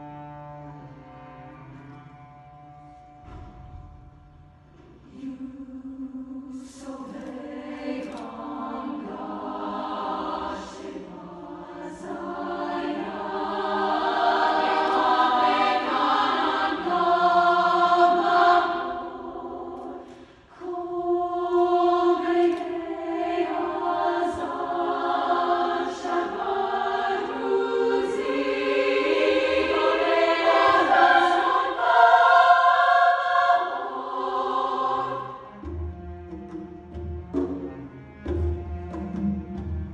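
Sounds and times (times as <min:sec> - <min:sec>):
women's choir singing: 0:05.0 - 0:35.7.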